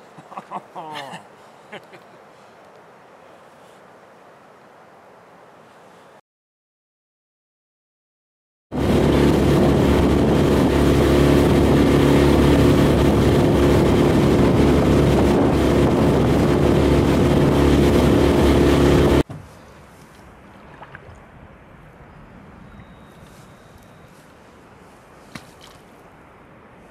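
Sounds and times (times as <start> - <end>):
rush of wind and water: 0.0 - 6.2, 8.7 - 26.9
outboard motor drone: 8.7 - 19.2.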